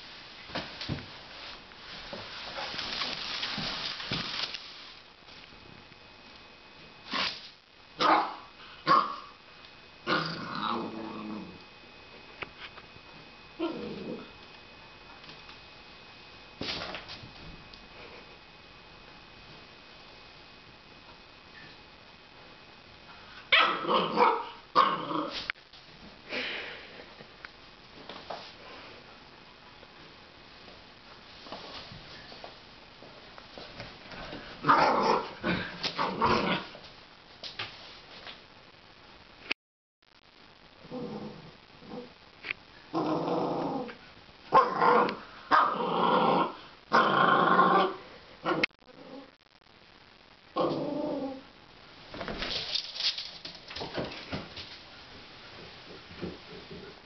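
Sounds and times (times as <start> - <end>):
puppy barking and growling: 8.0 - 9.4, 10.0 - 11.6, 23.5 - 25.4, 34.6 - 36.8, 42.9 - 49.3.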